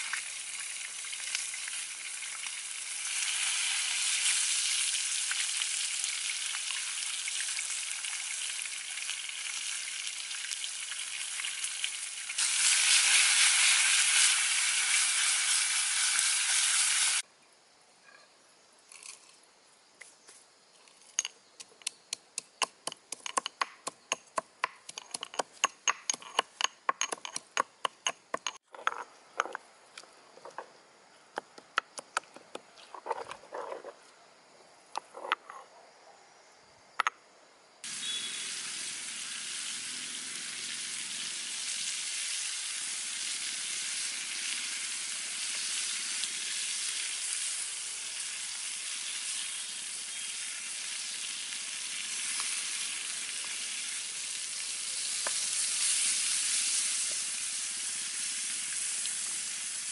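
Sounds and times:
chicken sizzling in skillet: 0.0s - 17.2s, 37.8s - 59.9s.

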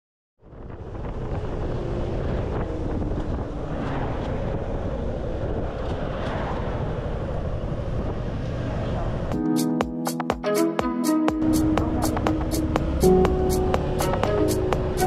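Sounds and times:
wind rushing over microphone: 0.4s - 9.4s
motorcycle engine running: 11.4s - 15.0s.

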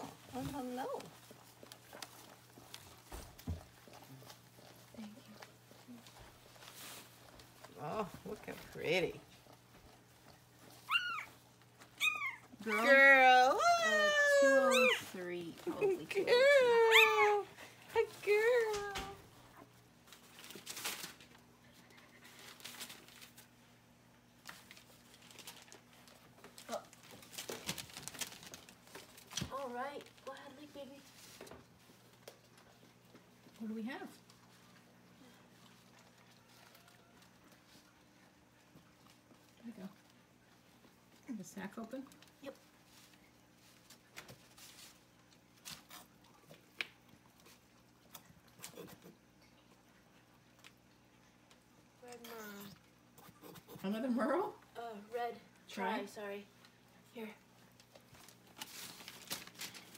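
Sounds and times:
soft rustles and wet sounds: 0.0s - 59.9s
paper bedding rustling: 20.0s - 21.4s, 58.2s - 59.9s.

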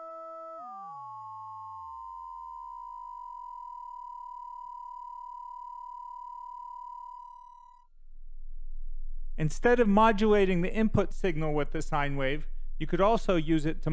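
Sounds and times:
ring-modulated synth tone: 0.0s - 9.3s.

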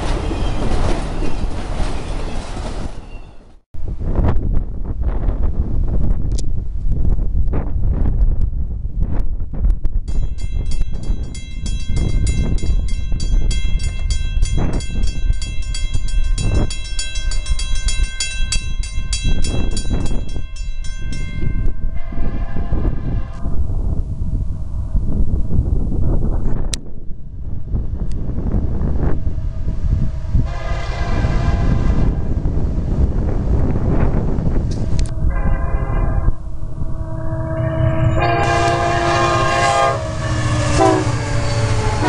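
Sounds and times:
low train rumble: 0.0s - 42.0s
wind buffeting microphone: 3.8s - 42.0s
railroad crossing bell ringing: 10.1s - 23.0s, 34.4s - 42.0s
train horn: 21.8s - 23.6s, 30.0s - 32.4s, 34.8s - 42.0s.

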